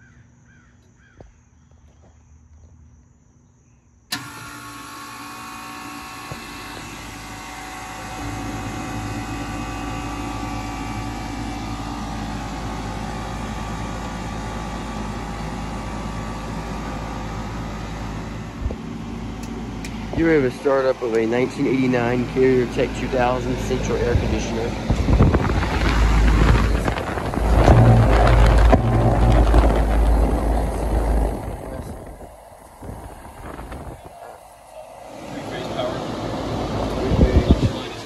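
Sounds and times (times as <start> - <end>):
air conditioner humming and whining: 4.1 - 38.0.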